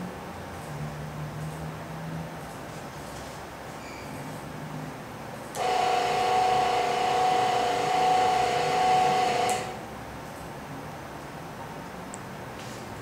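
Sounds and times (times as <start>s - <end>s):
elevator hoist motor whining: 5.6s - 9.9s.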